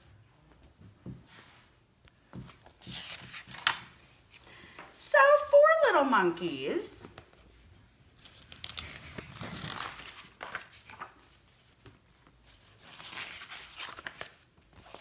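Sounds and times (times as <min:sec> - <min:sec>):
book pages flipping: 0:00.8 - 0:04.5, 0:07.1 - 0:15.0.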